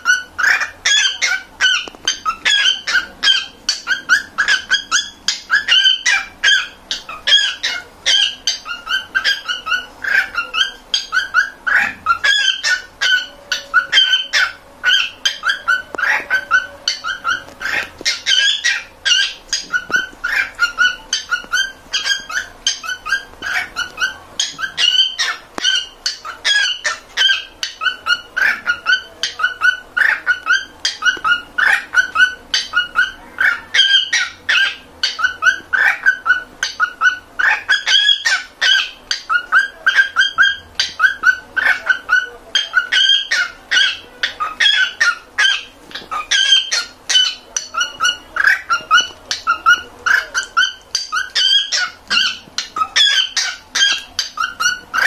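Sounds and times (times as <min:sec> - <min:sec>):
cockatiel whistling chirps: 0:00.0 - 0:55.0.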